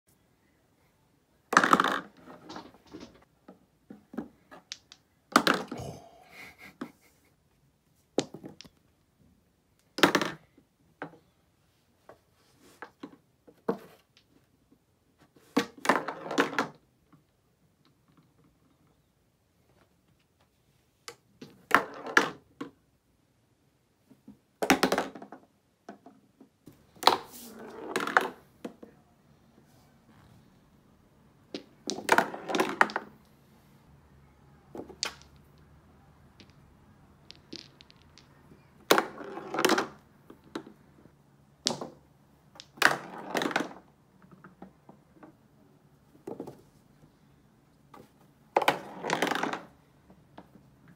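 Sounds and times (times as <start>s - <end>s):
small pool balls clacking: 1.5s - 6.0s, 8.1s - 9.2s, 12.8s - 19.1s, 21.0s - 22.9s, 24.0s - 29.0s, 31.4s - 33.4s, 34.6s - 47.2s, 47.8s - 50.9s.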